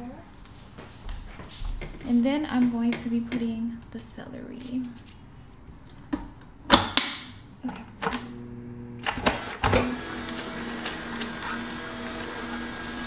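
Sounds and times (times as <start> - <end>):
juicer motor humming: 7.7 - 13.0.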